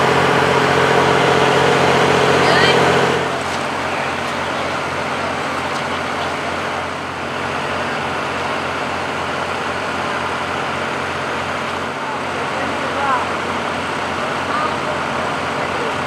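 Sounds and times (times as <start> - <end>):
large engine idling: 0.0 - 16.0.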